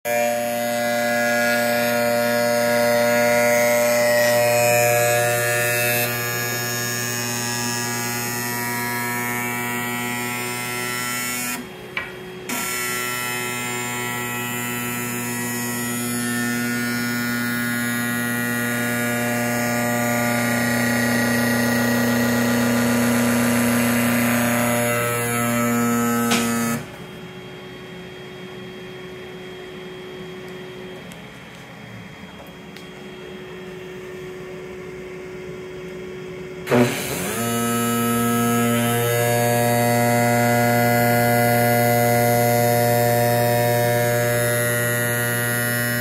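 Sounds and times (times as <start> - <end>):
skate sharpener buzzing hum: 0.1 - 27.1, 36.6 - 46.0.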